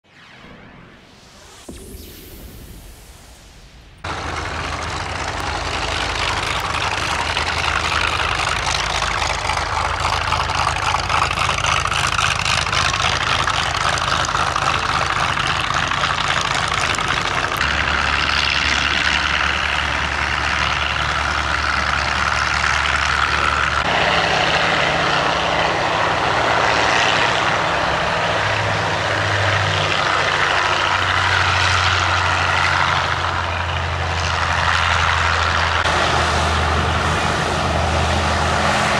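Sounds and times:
propeller plane engine idling: 0:04.0 - 0:38.9.

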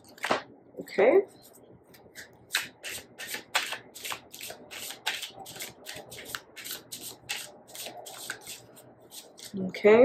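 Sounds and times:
cards being shuffled: 0:01.9 - 0:09.6.

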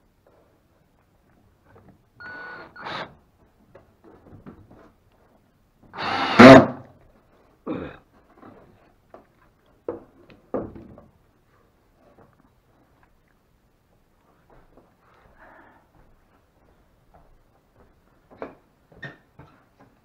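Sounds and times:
cordless drill driving screws: 0:02.2 - 0:03.2, 0:06.0 - 0:06.6.

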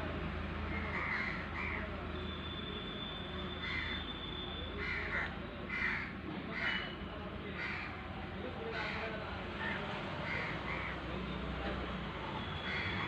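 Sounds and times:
crows cawing: 0:00.8 - 0:01.8, 0:03.6 - 0:04.0, 0:04.8 - 0:06.8, 0:07.6 - 0:07.9, 0:09.6 - 0:11.0, 0:12.7 - 0:13.0.

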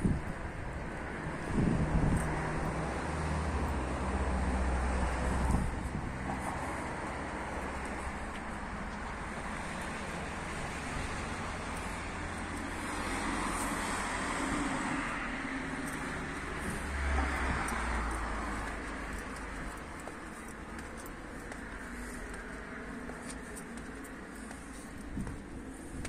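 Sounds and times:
wind on microphone: 0:00.0 - 0:07.8, 0:24.9 - 0:26.0
vehicle engine rumble: 0:00.0 - 0:26.0.

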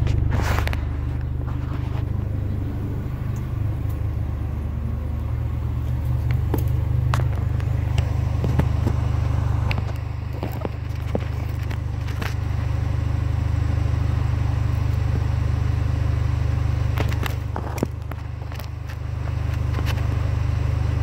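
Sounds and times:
footsteps on concrete: 0:00.0 - 0:04.1, 0:05.2 - 0:12.4
car engine idling: 0:00.0 - 0:21.0.

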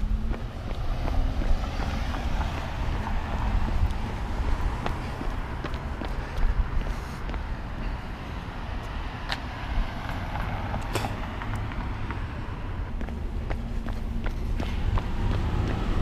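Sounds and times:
steady low rumble: 0:00.0 - 0:16.0
car driving past: 0:14.5 - 0:16.0.

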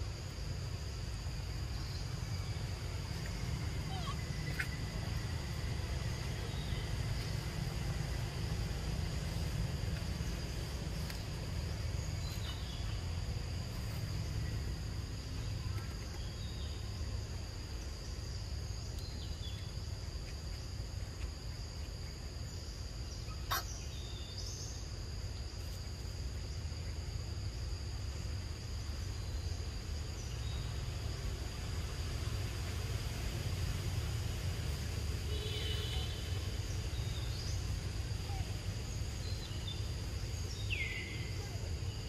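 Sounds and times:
high insect drone: 0:00.0 - 0:42.0
bird chirps: 0:03.2 - 0:05.1.

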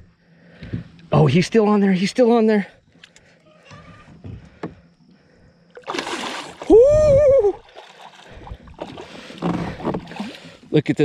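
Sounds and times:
fish splashing in water: 0:05.8 - 0:06.8
person shouting in excitement: 0:06.7 - 0:07.6.

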